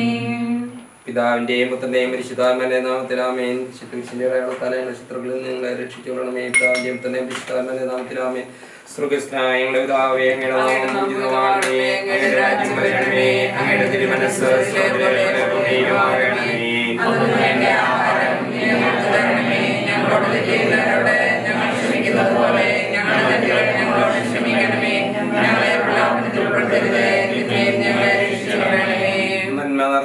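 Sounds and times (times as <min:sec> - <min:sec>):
choir singing unaccompanied: 0:00.0 - 0:00.8, 0:10.0 - 0:29.6.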